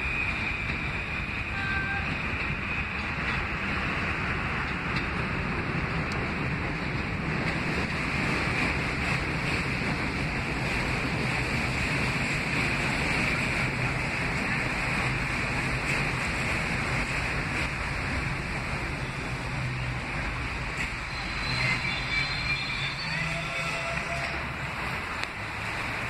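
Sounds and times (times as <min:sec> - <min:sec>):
subway train rumbling: 0:00.0 - 0:26.0
wind on microphone: 0:00.0 - 0:26.0
thin squealing tones: 0:20.8 - 0:24.5.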